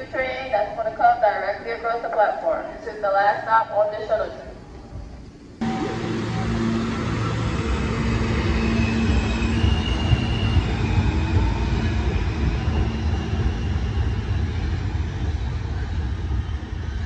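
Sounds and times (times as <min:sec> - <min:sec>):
faint train hum: 0:00.0 - 0:17.0
train wheels rumbling on rails: 0:05.5 - 0:17.0.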